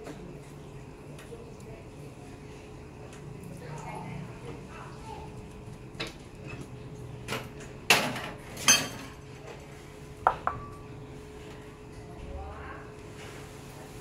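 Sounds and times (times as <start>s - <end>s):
kitchenware clanking: 7.4s - 10.8s.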